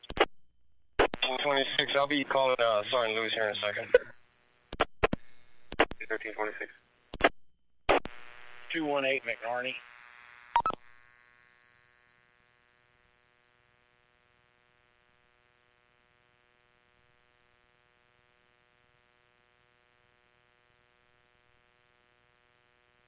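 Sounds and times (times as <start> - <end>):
radio squelch burst: 1.0 - 4.1, 5.8 - 6.8
electrical hum with static hiss: 1.1 - 7.2, 8.0 - 11.5.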